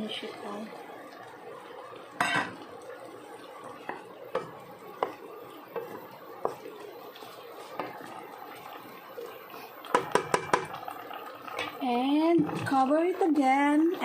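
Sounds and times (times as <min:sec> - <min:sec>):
utensil stirring in metal pot: 0:03.6 - 0:10.9.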